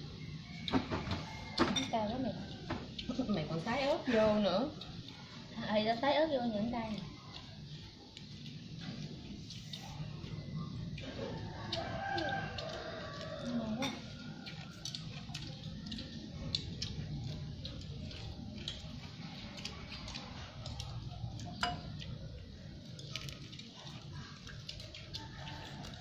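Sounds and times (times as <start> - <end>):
chopsticks tapping bowls and plates: 21.4 - 22.1.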